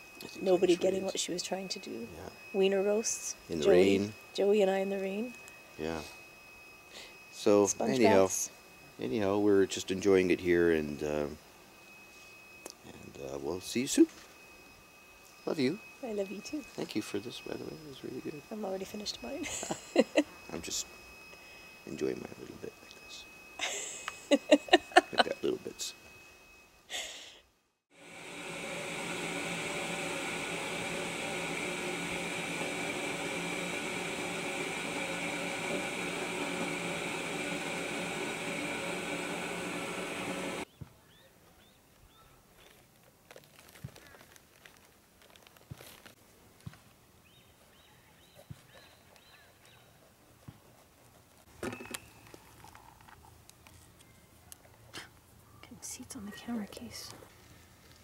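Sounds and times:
fan whirring: 0:00.0 - 0:27.2, 0:27.9 - 0:40.7
faint hum: 0:00.0 - 0:40.7.

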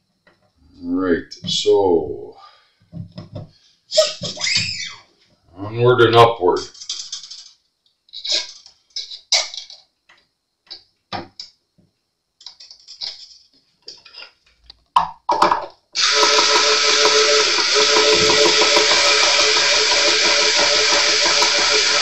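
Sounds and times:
electric screwdriver running: 0:16.0 - 0:22.0.

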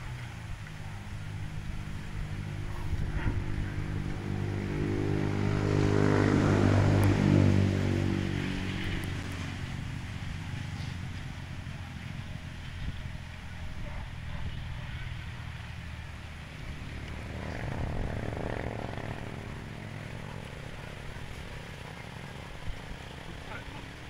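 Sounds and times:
engine passing by: 0:00.0 - 0:24.0.

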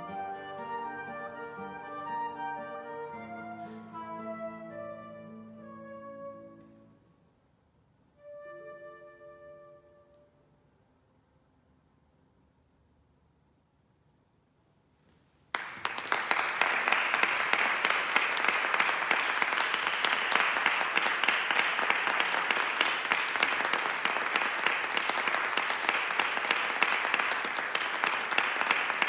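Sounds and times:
audience applause: 0:15.5 - 0:29.0.

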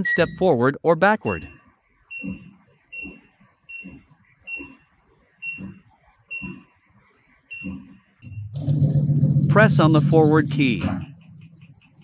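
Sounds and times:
brief low motor sound: 0:08.2 - 0:12.0.

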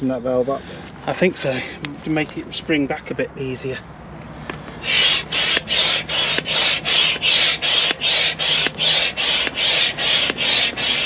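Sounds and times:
hand pump hissing strokes: 0:04.5 - 0:11.0.

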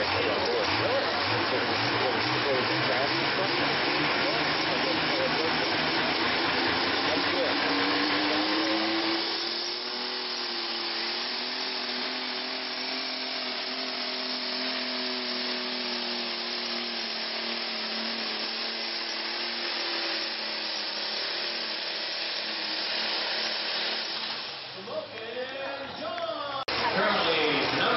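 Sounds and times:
diesel tractor engine at full throttle: 0:00.0 - 0:25.2, 0:26.6 - 0:27.9.

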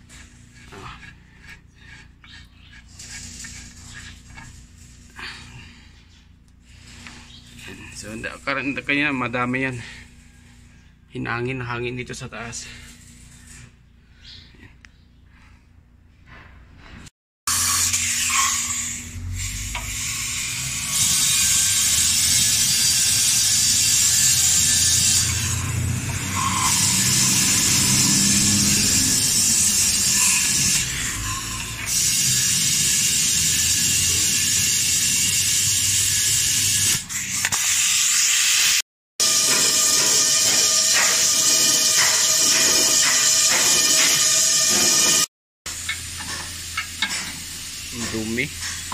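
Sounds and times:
compressed air hissing from valve: 0:17.5 - 0:38.8.

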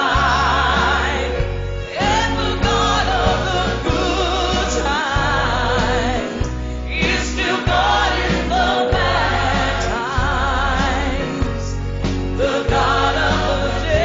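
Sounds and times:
gospel choir singing: 0:00.0 - 0:14.0
low bass: 0:00.0 - 0:14.0.

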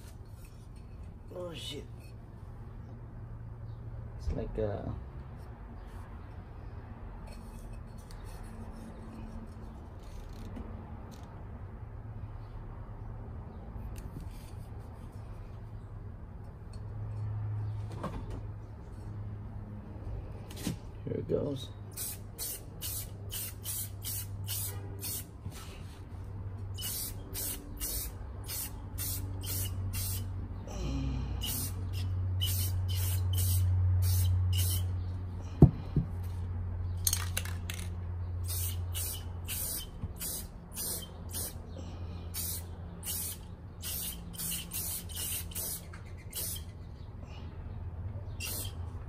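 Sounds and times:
aerosol spray can hissing: 0:22.0 - 0:25.3, 0:26.8 - 0:30.3, 0:31.4 - 0:34.9, 0:38.4 - 0:41.6, 0:42.4 - 0:46.7, 0:48.4 - 0:48.8.

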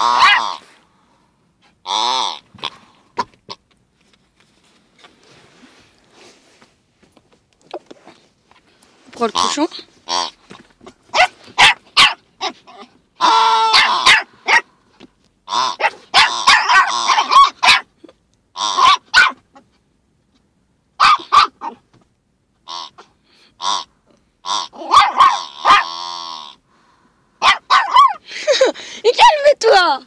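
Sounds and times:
small dog barking: 0:00.0 - 0:00.6, 0:11.1 - 0:12.6, 0:13.2 - 0:14.7, 0:15.8 - 0:17.9, 0:18.8 - 0:19.4, 0:21.0 - 0:21.8, 0:24.8 - 0:25.9, 0:27.4 - 0:28.2.

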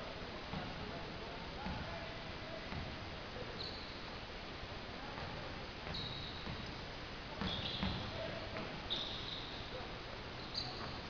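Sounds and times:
shoes squeaking on gym floor: 0:03.6 - 0:04.0, 0:05.9 - 0:06.6, 0:07.4 - 0:09.7, 0:10.4 - 0:11.0.

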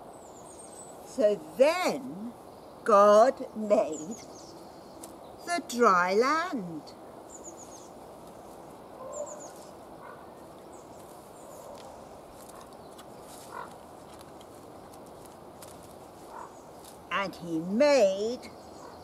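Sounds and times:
low background noise: 0:00.0 - 0:19.0
bird chirps: 0:07.3 - 0:13.7.

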